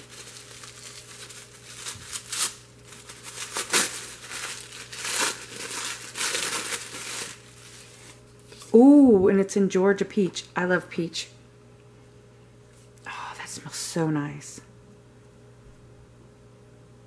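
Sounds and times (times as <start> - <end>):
tissue paper crinkling: 0.0 - 8.7.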